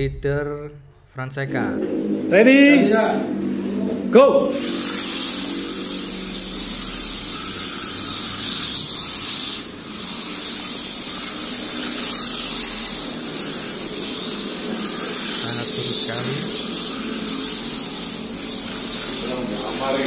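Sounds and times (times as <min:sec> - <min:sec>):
rc cars high motor hiss: 0:04.5 - 0:20.0.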